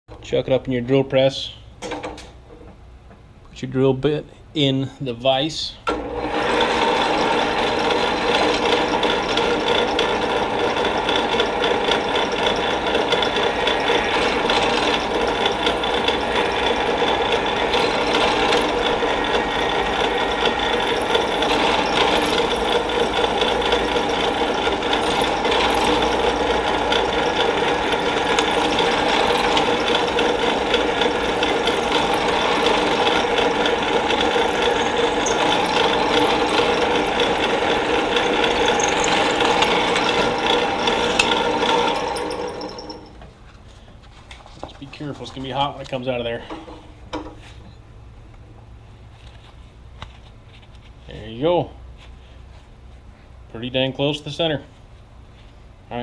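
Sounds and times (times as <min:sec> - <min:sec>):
drill press running: 0:05.9 - 0:43.2
drill bit cutting metal: 0:06.2 - 0:43.0.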